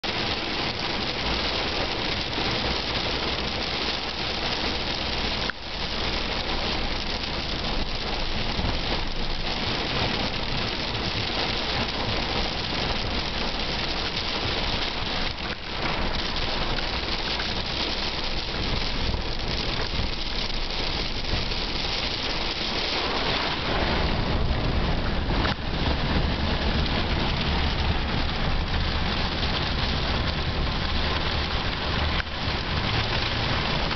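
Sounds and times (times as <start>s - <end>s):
hard rain on vehicle roof: 0.0s - 33.9s
deep low rumble: 7.3s - 33.9s.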